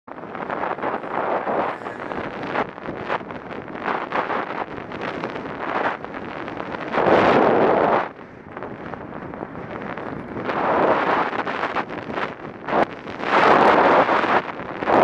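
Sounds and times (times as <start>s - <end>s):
wind buffeting microphone: 0.1s - 15.0s.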